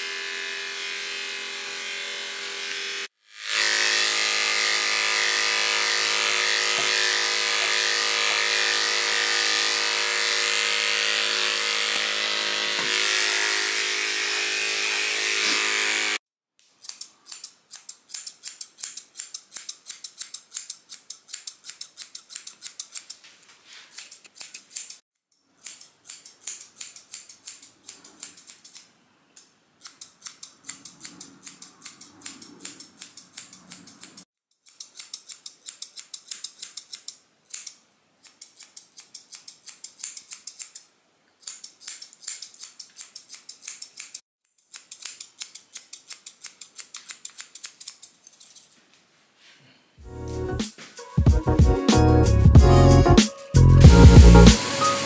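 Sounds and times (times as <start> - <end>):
electric clippers whining: 0.0 - 16.2
scissors snipping fur: 15.4 - 15.7, 16.7 - 23.2, 23.9 - 25.0, 25.6 - 48.8.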